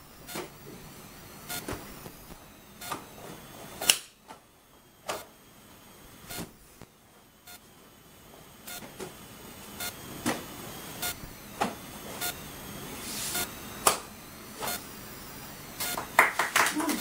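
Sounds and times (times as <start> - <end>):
uniform snapping: 3.9 - 4.2.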